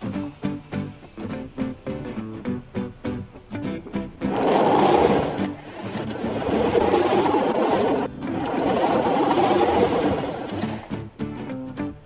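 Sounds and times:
toy wheels rolling on cardboard: 4.2s - 11.0s.

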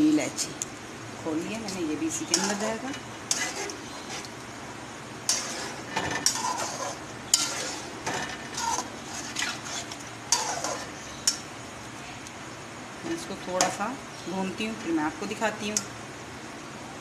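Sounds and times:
frying sizzle: 0.0s - 17.0s
spatula scraping a pot: 2.3s - 4.4s, 5.3s - 11.4s.

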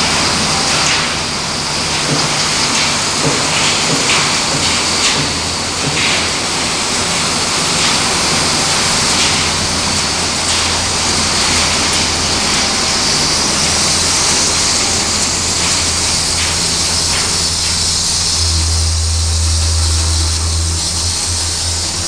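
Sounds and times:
loud machinery din: 0.0s - 22.0s
low hum: 15.2s - 22.0s.

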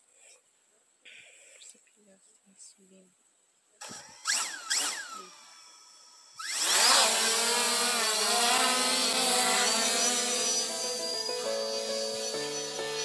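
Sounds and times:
drone motors buzzing: 3.8s - 13.0s.

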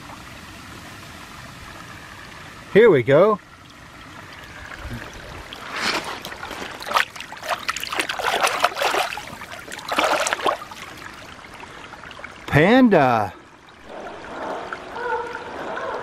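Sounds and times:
stream trickling: 0.0s - 16.0s
hand splashing in water: 5.0s - 11.0s.

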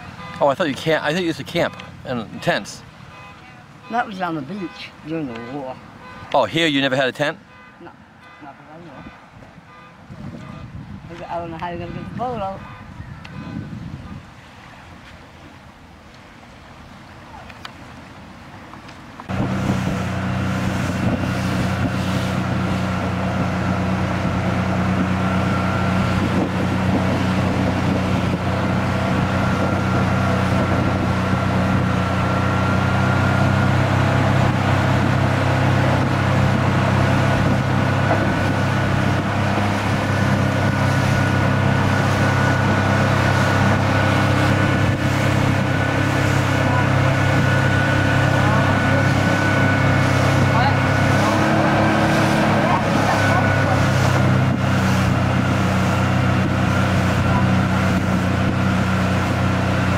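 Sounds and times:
outboard motor running: 0.0s - 6.2s, 19.3s - 59.9s.

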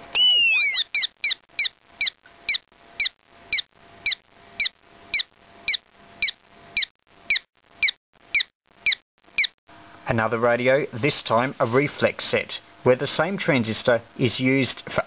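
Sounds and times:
electronic bird chirps: 0.1s - 9.6s.

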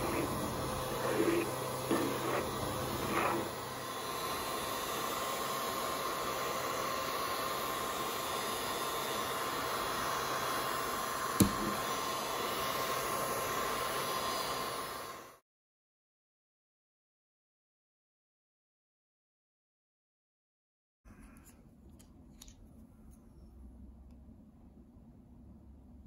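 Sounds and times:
hair dryer blowing: 0.0s - 15.4s.

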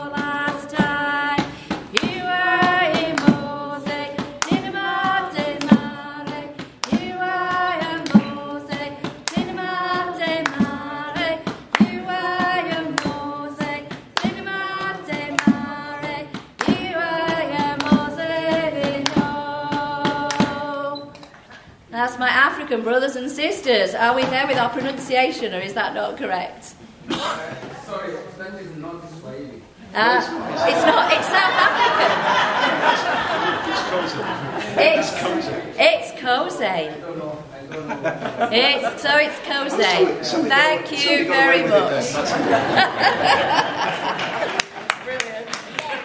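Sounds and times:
sharp percussive beat: 0.0s - 20.8s
congregation singing unaccompanied: 0.0s - 21.3s, 30.0s - 35.8s, 38.0s - 44.5s.

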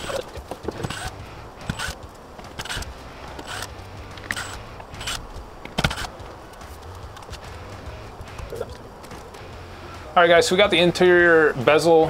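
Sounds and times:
cordless drill bursts: 0.8s - 2.0s, 2.6s - 5.2s.

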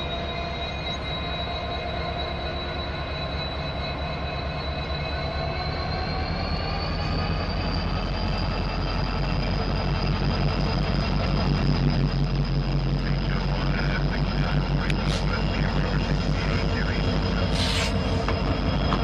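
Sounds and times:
diesel locomotive engine rumble: 0.0s - 19.0s
high steady whine: 0.0s - 19.0s.

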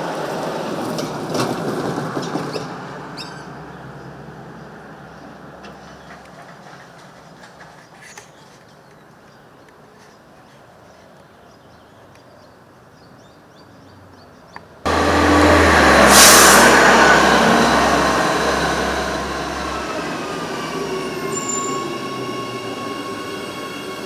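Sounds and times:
electric train passing platform: 0.0s - 8.0s, 14.8s - 24.0s
train brake hiss: 14.9s - 24.0s
train whining tones falling: 14.9s - 24.0s.

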